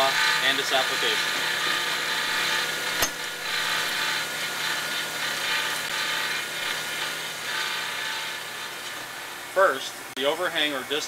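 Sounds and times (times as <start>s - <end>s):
saw blade grinding hiss: 0.0s - 8.8s
faint machine hum: 0.0s - 11.0s.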